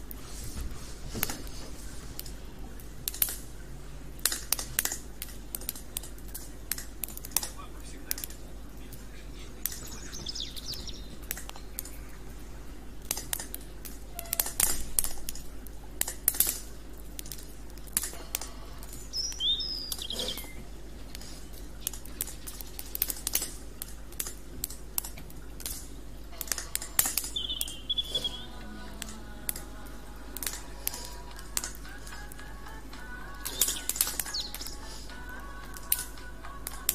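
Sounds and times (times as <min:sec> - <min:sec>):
campfire crackling and popping: 0:00.0 - 0:36.9
high bird chirps: 0:09.8 - 0:12.2, 0:19.0 - 0:20.7, 0:27.2 - 0:28.6, 0:33.5 - 0:35.0.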